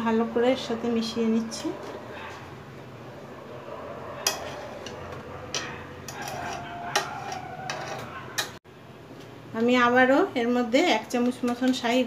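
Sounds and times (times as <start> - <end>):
spoon stirring in a pot: 4.0 - 8.6
spoon knocking against metal pot: 4.2 - 8.6.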